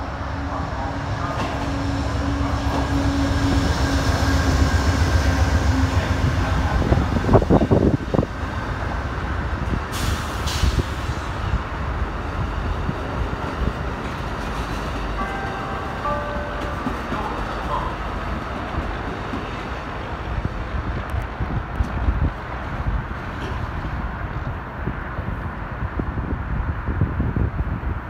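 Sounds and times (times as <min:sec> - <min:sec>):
diesel locomotive engine drone: 0:00.0 - 0:28.0
train cars clattering over rails: 0:00.7 - 0:04.3, 0:12.9 - 0:20.4
air release hisses: 0:09.9 - 0:11.3.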